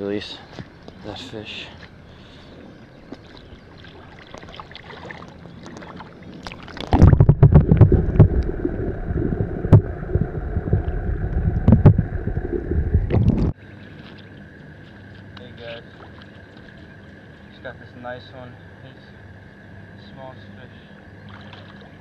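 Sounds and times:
water sloshing and rushing: 3.0s - 14.6s, 15.6s - 17.5s, 21.2s - 22.0s
faint splashes: 3.1s - 17.5s, 21.3s - 22.0s
muffled underwater rumble: 5.7s - 13.6s.

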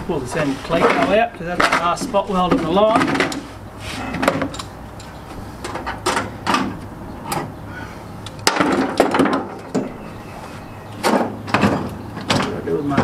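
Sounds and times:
metal fasteners clicking: 4.2s - 7.5s.

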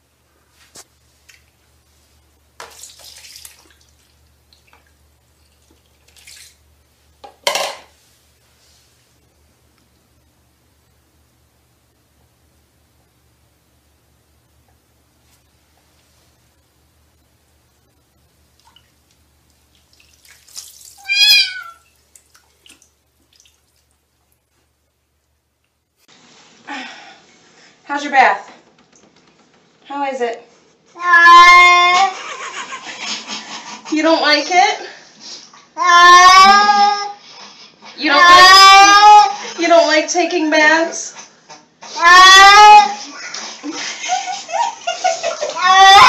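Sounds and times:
bathwater splashing: 1.1s - 7.2s, 18.4s - 24.8s
cat meowing: 21.0s - 21.9s.

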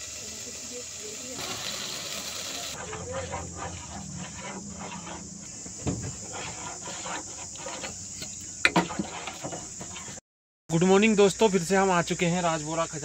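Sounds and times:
ladle scraping steel pot: 2.7s - 10.2s
low thump: 5.7s - 6.3s.

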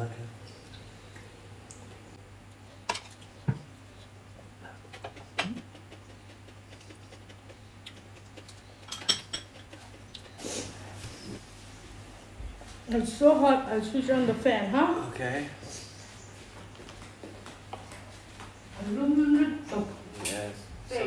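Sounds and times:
spoons clinking on plates: 8.8s - 9.6s.

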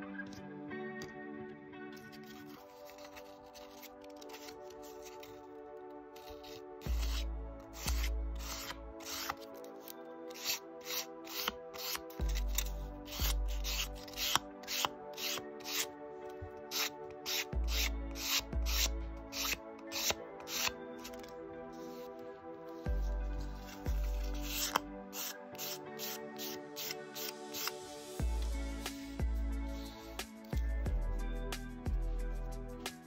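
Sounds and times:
sandpaper rubbing leather edge: 2.2s - 5.3s, 6.2s - 15.9s, 16.7s - 22.1s, 22.7s - 27.8s.

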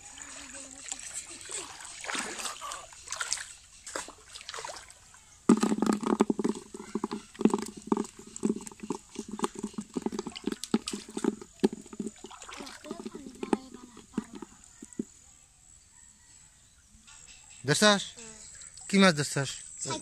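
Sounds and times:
pond water splashing and sloshing: 0.0s - 15.1s
knocks in water: 1.5s - 4.8s, 5.5s - 15.1s.

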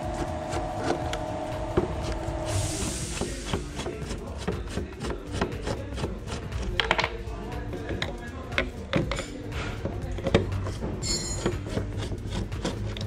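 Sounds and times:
steady hum: 0.0s - 6.6s.

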